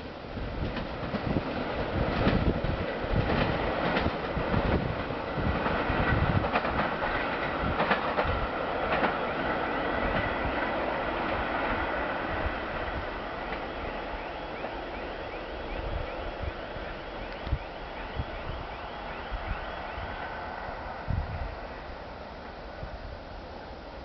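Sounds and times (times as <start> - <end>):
train rumble: 0.0 - 24.0
wheels clicking over rails: 0.6 - 11.7.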